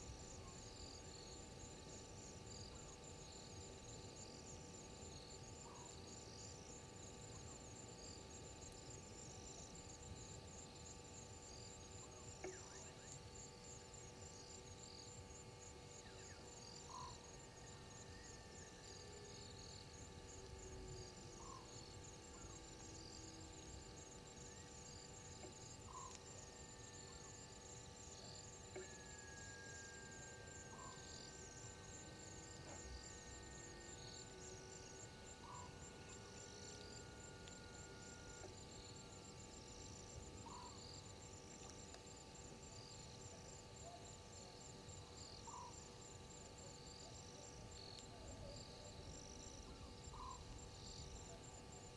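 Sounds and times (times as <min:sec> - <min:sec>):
steady low hum: 0:00.0 - 0:51.9
insect trilling: 0:20.3 - 0:39.4, 0:48.2 - 0:51.5.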